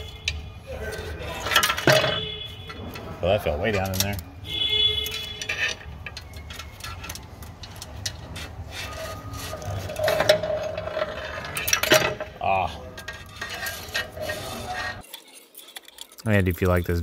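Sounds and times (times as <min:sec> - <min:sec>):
metal tool clicking and scraping: 0:03.7 - 0:12.2.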